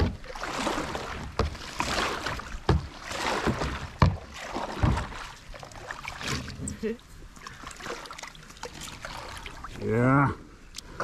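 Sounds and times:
paddle knocking against boat: 0.0 - 5.3
paddle swishing through water: 0.0 - 9.9.

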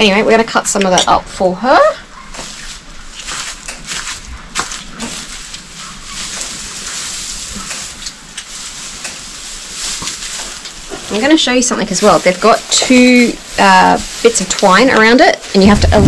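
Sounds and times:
dry hay rustling and crackling: 2.0 - 16.0.

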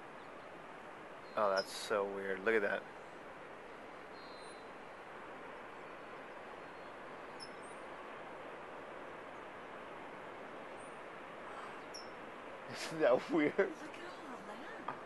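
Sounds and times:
distant surf breaking: 0.0 - 15.0
faint high bird chirps: 1.2 - 1.9, 4.1 - 4.8, 5.6 - 7.9, 10.8 - 12.2.

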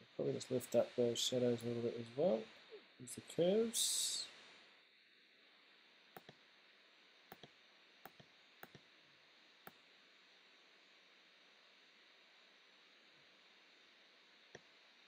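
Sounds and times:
faint room hiss: 0.0 - 15.0
computer mouse clicks: 6.1 - 6.4, 7.3 - 8.9.

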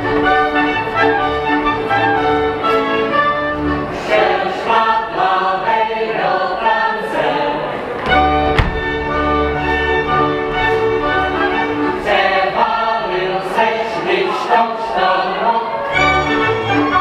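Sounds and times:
folk band playing dance music: 0.0 - 4.4, 8.0 - 12.6, 15.9 - 17.0
people singing: 3.8 - 9.2, 11.0 - 17.0.

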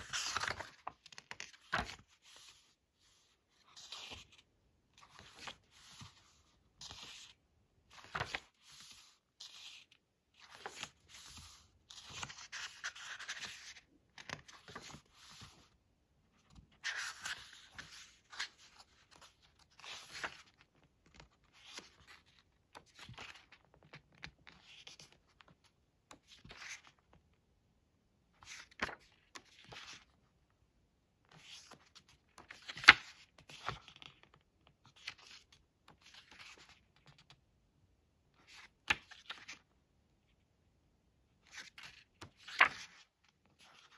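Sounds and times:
thick pages swishing and rustling: 0.0 - 4.4, 5.0 - 15.8, 16.5 - 20.7, 41.4 - 43.9.

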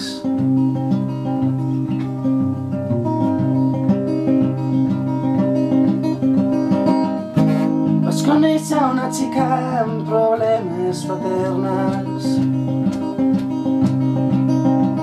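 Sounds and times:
acoustic guitar playing chords: 0.0 - 15.0.

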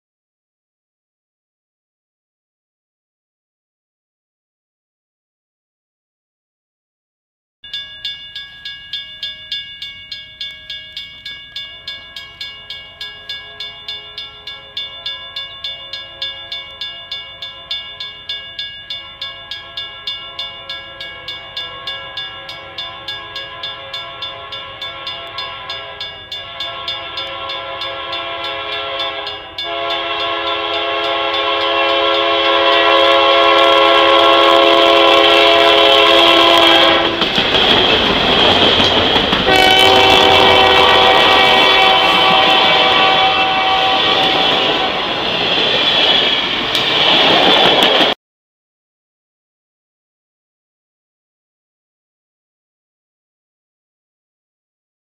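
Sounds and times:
railroad crossing bell: 7.6 - 48.2
train passing rush: 8.0 - 48.2
locomotive air horn: 13.3 - 15.3, 19.1 - 37.8, 39.4 - 45.4.

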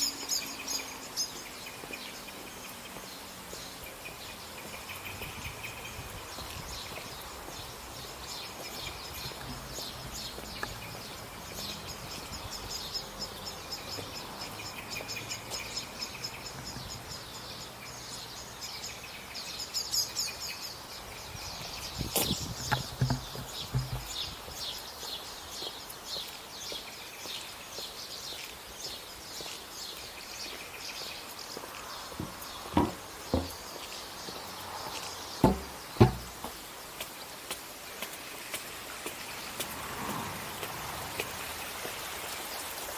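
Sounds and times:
small birds chirping: 0.0 - 42.9
sharp thumps: 22.2 - 24.2, 35.4 - 36.5.

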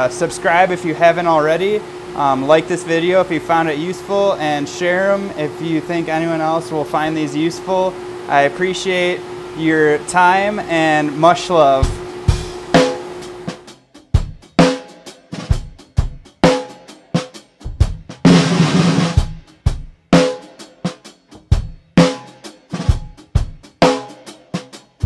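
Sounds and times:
drum kit beat: 11.6 - 25.0.

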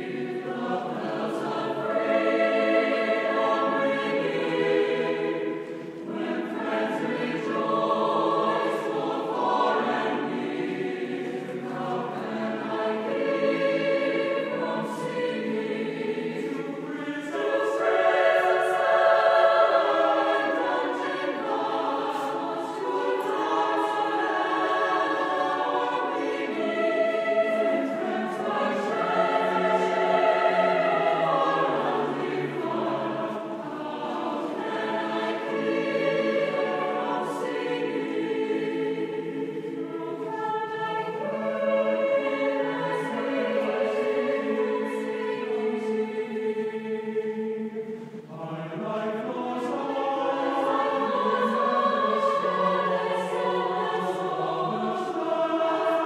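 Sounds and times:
choir singing a hymn: 0.0 - 56.0.

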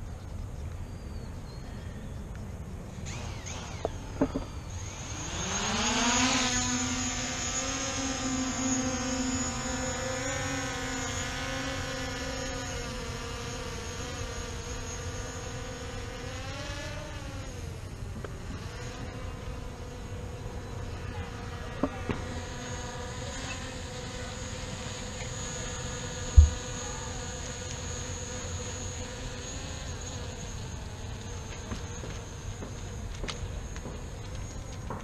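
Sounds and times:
drone propellers buzzing: 2.8 - 35.0
low thump: 26.4 - 26.6.

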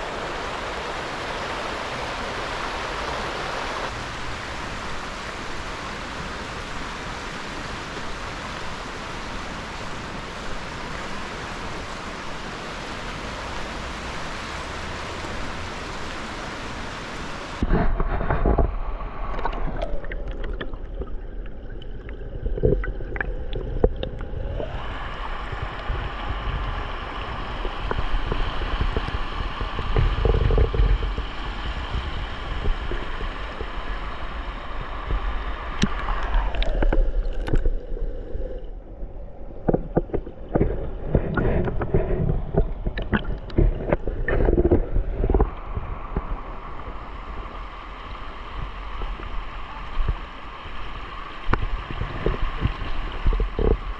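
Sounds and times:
rushing creek water: 0.0 - 53.9
low rumble: 17.6 - 50.4.

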